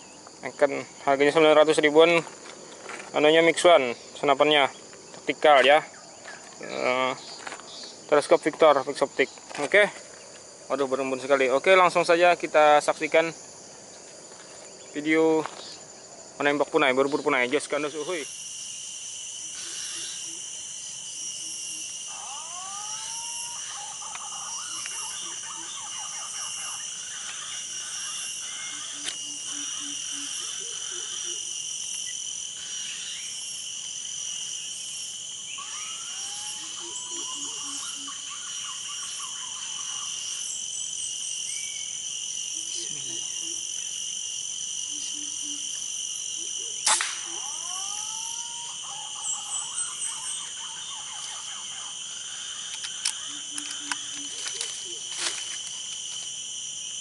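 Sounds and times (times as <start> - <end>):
high insect drone: 0.0 - 57.0
sharp crack: 46.8 - 47.3.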